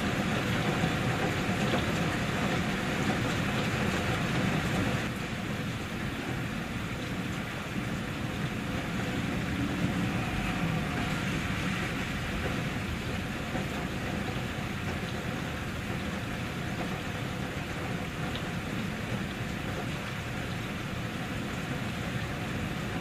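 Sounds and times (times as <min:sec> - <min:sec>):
steady rain: 0:00.0 - 0:23.0
deep low rumble: 0:07.8 - 0:14.3.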